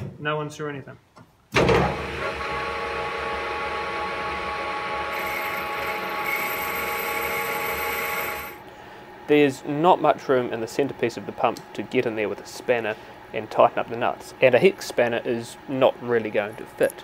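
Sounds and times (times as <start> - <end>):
metal lathe running with whine: 2.4 - 8.6.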